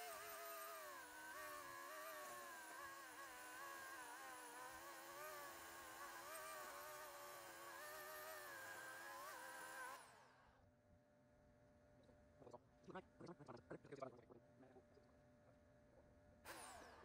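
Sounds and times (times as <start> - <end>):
chainsaw cutting a log: 0.0 - 10.4, 16.5 - 17.0.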